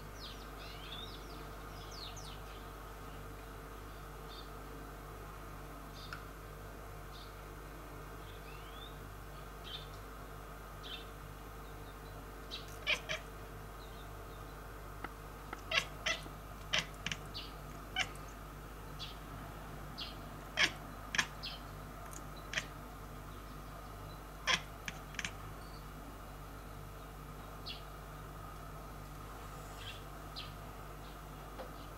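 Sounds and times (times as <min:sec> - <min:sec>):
cat chirping: 0:12.5 - 0:13.3, 0:15.5 - 0:18.4, 0:20.0 - 0:22.7, 0:24.4 - 0:25.4.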